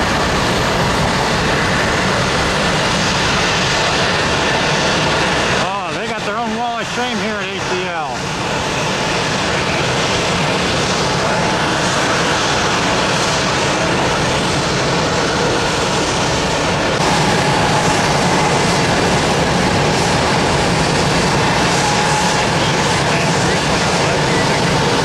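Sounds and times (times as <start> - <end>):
jet engines roaring: 0.0 - 25.0.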